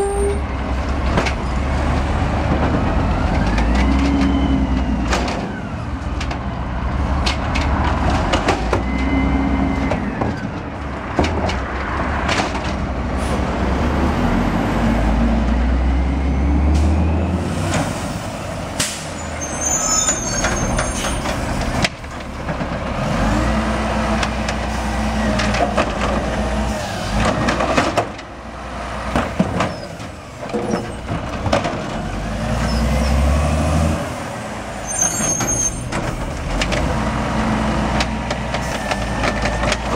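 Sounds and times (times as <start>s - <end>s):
diesel engines revving: 0.0s - 39.9s
air brakes hissing: 16.7s - 21.3s.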